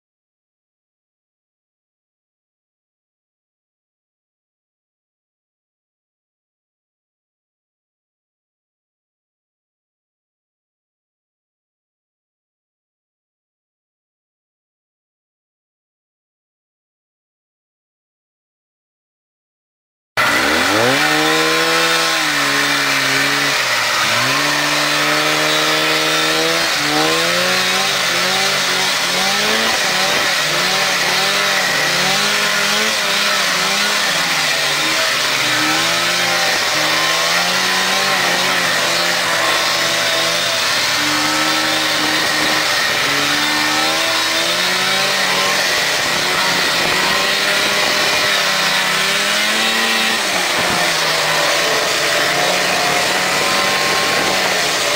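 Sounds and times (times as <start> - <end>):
snowmobile engine revving: 20.2 - 54.9.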